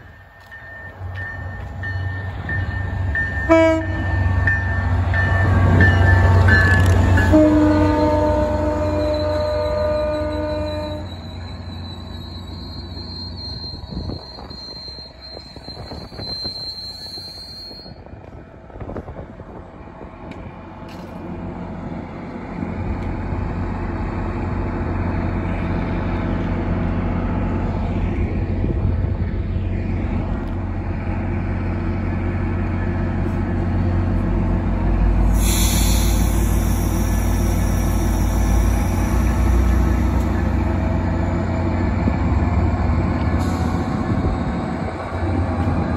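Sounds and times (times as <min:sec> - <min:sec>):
train wheels squealing: 0:00.0 - 0:18.2, 0:35.2 - 0:45.9
hiss: 0:35.2 - 0:39.4.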